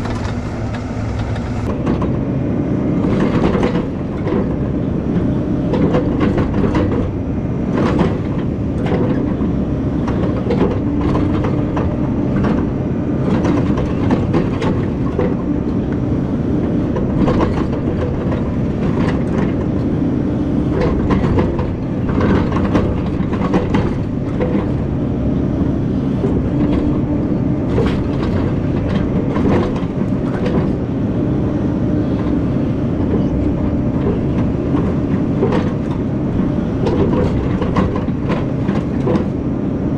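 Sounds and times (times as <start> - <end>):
excavator diesel engine running: 0.0 - 39.9
knocks and clunks of bucket: 36.8 - 39.4.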